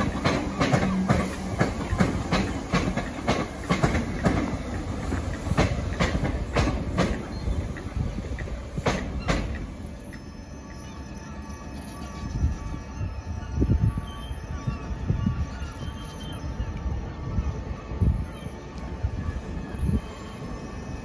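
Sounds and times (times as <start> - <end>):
train wheels clacking over rail joints: 0.0 - 10.2
train rumble: 0.0 - 21.0.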